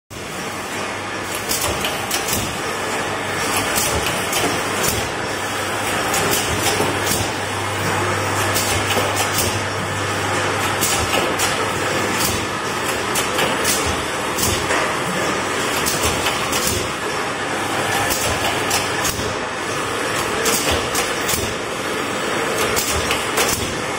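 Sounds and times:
machine clattering: 0:08.4 - 0:17.0.

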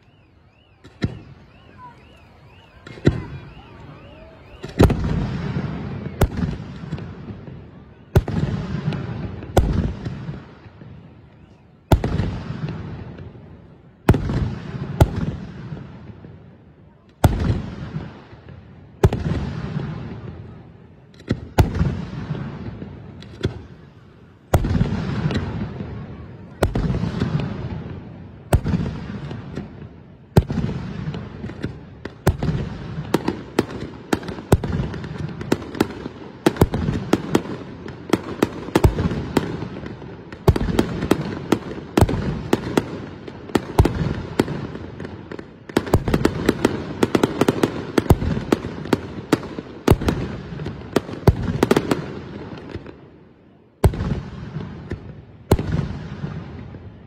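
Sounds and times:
firework crackling: 0:00.0 - 0:16.5, 0:17.2 - 0:52.9
firework bangs with rumble: 0:04.6 - 0:10.9.

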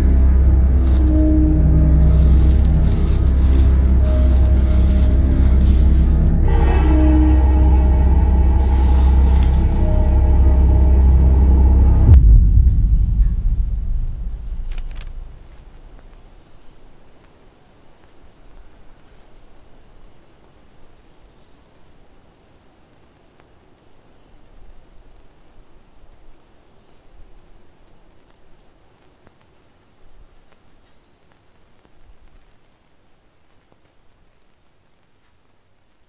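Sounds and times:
low rumble: 0:00.0 - 0:16.4
insects chirring: 0:00.0 - 0:35.3.

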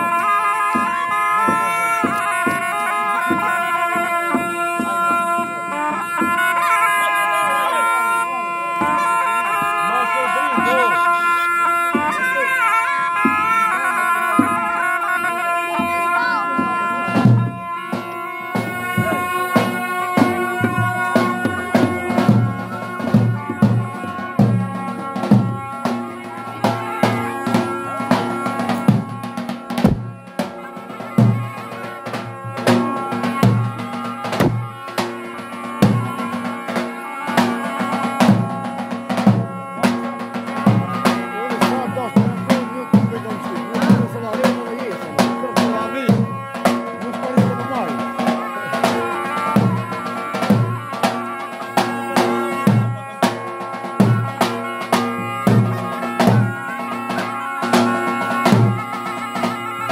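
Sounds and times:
large drum beats: 0:00.0 - 0:06.7, 0:11.8 - 0:13.7, 0:14.3 - 0:59.9
wind instrument melody: 0:00.0 - 0:59.9
bass drum beating: 0:26.7 - 0:30.5, 0:32.5 - 0:34.8.

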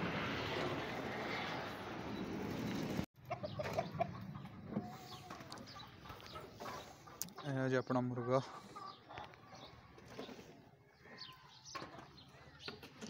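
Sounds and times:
rooster clucking: 0:03.2 - 0:07.5.

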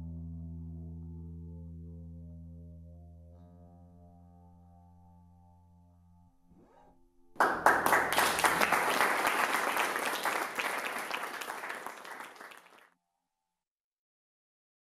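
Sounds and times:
electric bass tones: 0:00.0 - 0:06.2
audience applause: 0:07.4 - 0:12.9.

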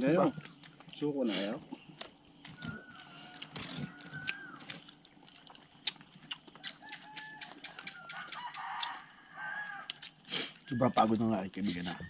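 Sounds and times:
distant rooster crowing: 0:02.5 - 0:04.8, 0:06.6 - 0:10.0.

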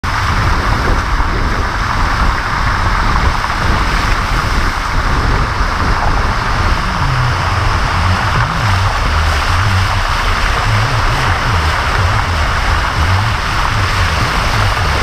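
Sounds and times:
low rumble: 0:00.0 - 0:15.0
tyres splashing through water: 0:00.0 - 0:15.0.

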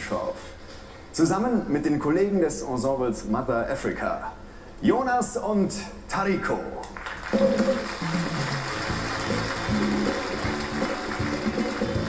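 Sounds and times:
drum hits: 0:07.3 - 0:08.3
bass line: 0:07.4 - 0:12.0
live band music: 0:07.4 - 0:12.0.

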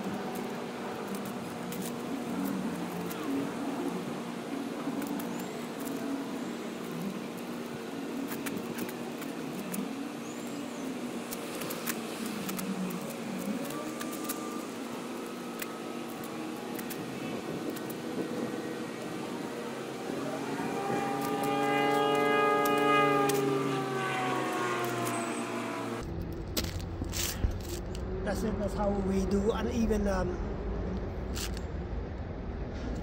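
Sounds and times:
motor running: 0:00.0 - 0:26.0.

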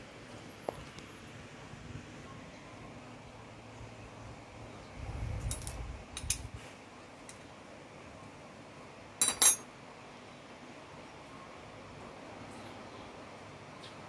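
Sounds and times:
metal parts clinking: 0:05.5 - 0:06.4, 0:09.2 - 0:09.6.

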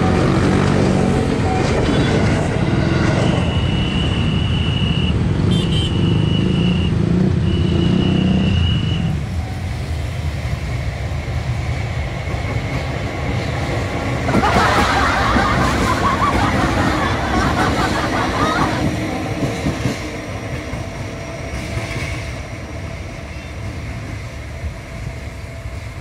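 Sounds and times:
motorcycle engines: 0:00.0 - 0:19.5
electric train rumbling past: 0:00.0 - 0:26.0.

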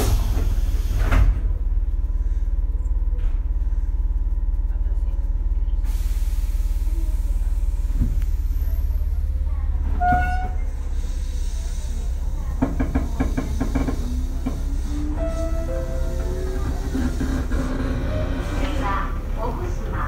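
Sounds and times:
train running gear rumble: 0:00.0 - 0:20.0
train wheels clattering: 0:10.0 - 0:20.0.

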